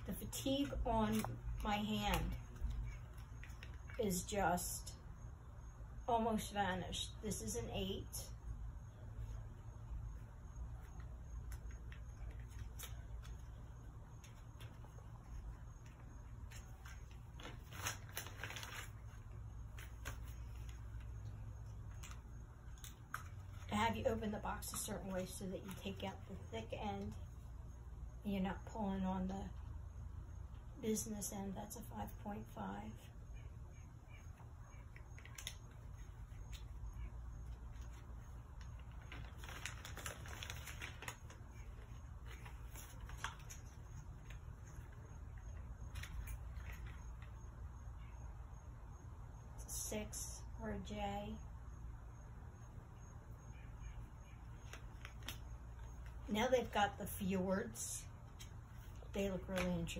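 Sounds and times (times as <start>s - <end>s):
cardboard and paper rustling: 0.0s - 4.3s, 10.8s - 27.4s, 34.8s - 47.4s, 54.5s - 57.2s, 58.2s - 59.9s
steady low hum: 0.0s - 59.9s.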